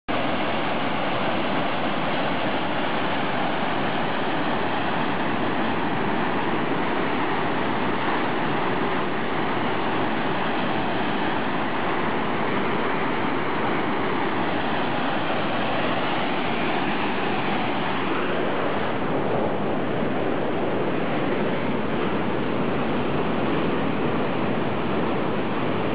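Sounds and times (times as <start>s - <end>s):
waterfall rushing: 0.1s - 19.9s.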